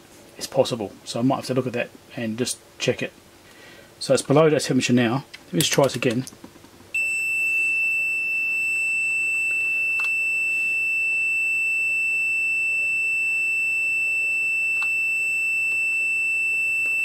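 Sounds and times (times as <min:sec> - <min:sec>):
multimeter continuity beep tone: 0:07.0 - 0:17.0.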